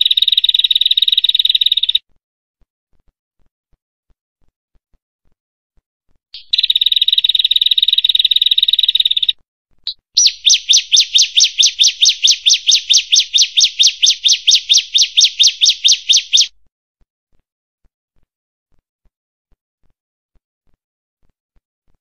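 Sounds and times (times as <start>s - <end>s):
bird fast repeated chirps: 0.0s - 2.0s, 6.4s - 16.5s
bird buzzing trill: 10.2s - 16.5s.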